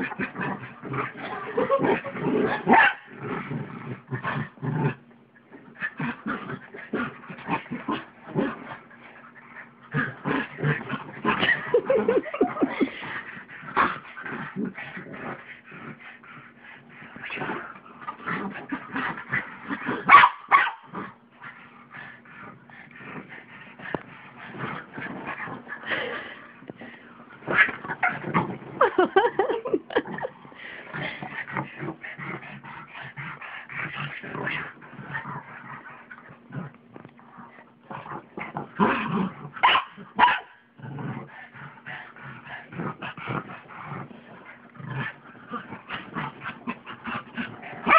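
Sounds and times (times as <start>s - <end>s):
dogs playing rough: 0.0s - 47.9s.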